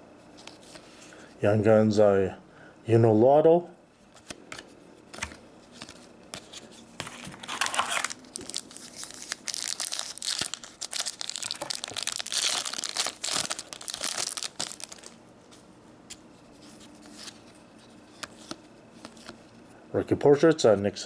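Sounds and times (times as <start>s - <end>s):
handling of cards: 4.1s - 19.6s
foil wrapper tearing and crinkling: 7.4s - 15.2s.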